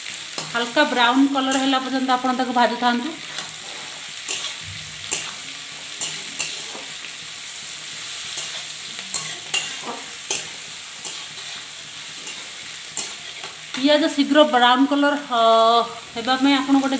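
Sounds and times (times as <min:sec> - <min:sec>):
onions sizzling in oil: 0:00.0 - 0:16.9
metal spatula scraping pan: 0:03.2 - 0:07.0, 0:08.2 - 0:13.8.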